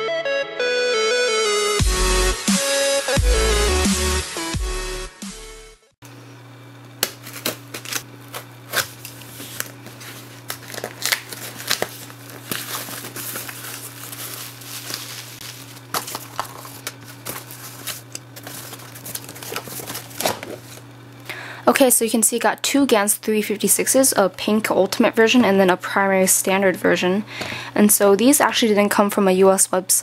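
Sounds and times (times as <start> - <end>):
steady low hum: 6.0 - 28.5
box cutter slitting tape: 7.0 - 9.7, 10.5 - 14.4
packing material crinkling: 7.0 - 20.9
cardboard flaps scraping: 7.1 - 20.8.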